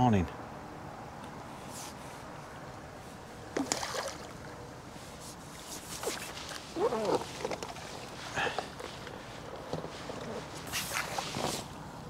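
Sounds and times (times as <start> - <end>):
water splashing: 3.5 - 4.6.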